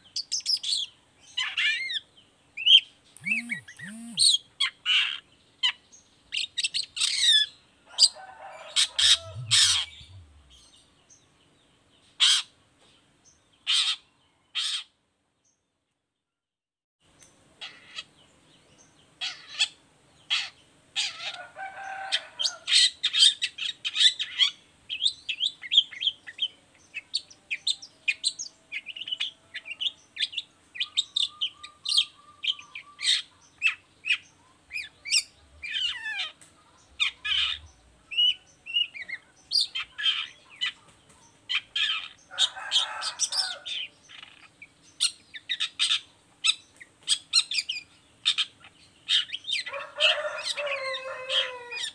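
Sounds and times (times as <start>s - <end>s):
bird singing chips and trills: 2.6s - 4.4s
harsh rasping bird calls: 2.6s - 5.8s, 6.4s - 10.7s, 28.8s - 36.4s, 37.0s - 40.8s.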